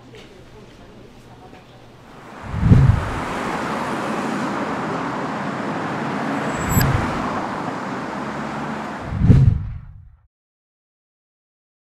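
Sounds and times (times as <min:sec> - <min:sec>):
cars passing: 0:02.1 - 0:10.1
low thump: 0:02.5 - 0:03.4, 0:09.0 - 0:10.1.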